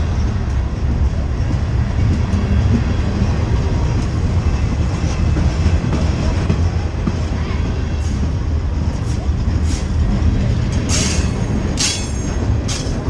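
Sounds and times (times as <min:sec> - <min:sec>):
freight train wheels rumbling: 0:00.0 - 0:13.0
wheels clacking over rail joints: 0:00.0 - 0:13.0.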